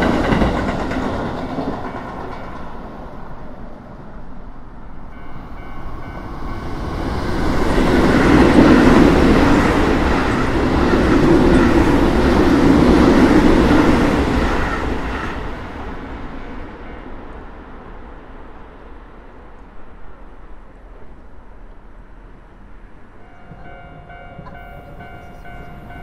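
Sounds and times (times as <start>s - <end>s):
train wheels clattering on rails: 0.0s - 3.4s, 5.4s - 17.5s
crossing warning bell: 1.6s - 3.3s, 5.0s - 9.5s, 16.5s - 17.6s, 23.2s - 26.0s.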